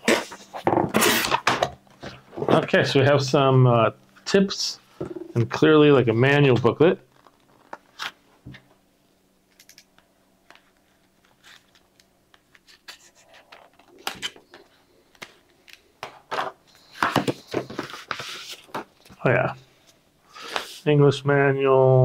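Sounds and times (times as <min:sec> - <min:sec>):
paper rustling: 0:16.9 - 0:18.9.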